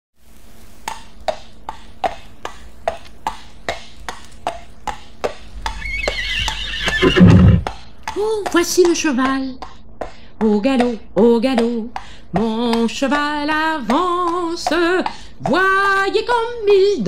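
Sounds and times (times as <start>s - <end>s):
horse hoofbeats clip-clopping: 0.9s - 9.8s, 13.8s - 16.0s
horse whinnying: 5.6s - 7.7s.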